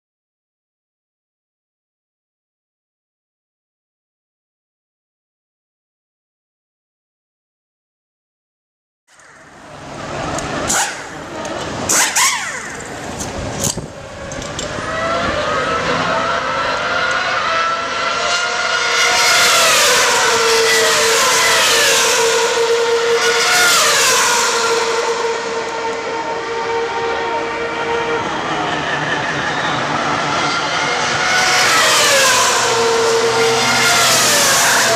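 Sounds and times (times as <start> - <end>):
racing car engines passing: 9.2 - 34.9.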